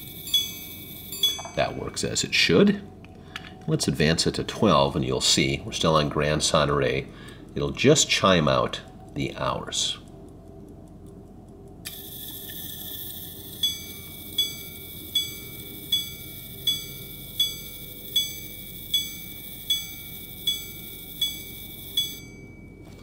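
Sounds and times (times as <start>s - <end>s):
watch mechanism whirring: 0.0s - 1.8s, 4.8s - 22.8s
pocket watch striking gong: 0.0s - 2.4s, 11.8s - 23.0s.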